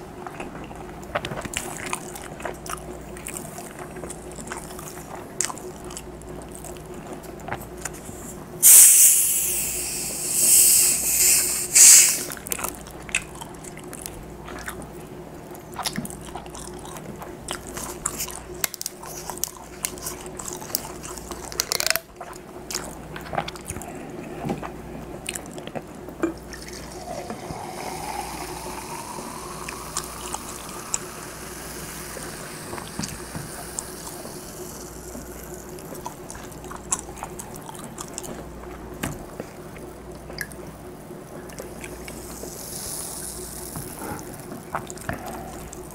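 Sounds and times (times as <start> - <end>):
bottle cap fizzing hiss: 8.6 - 12.3
cola pouring into a mug: 26.3 - 35.9.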